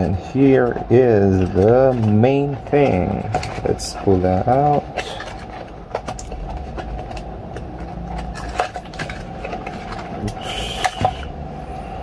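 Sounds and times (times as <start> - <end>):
scraping rustle: 0.0 - 11.2.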